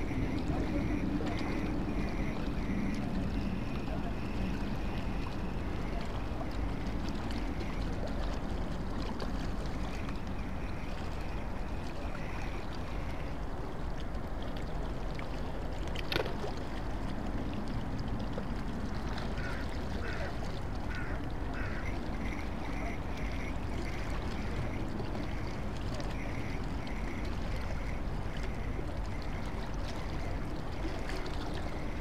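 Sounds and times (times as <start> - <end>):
water lapping: 0.0 - 32.0.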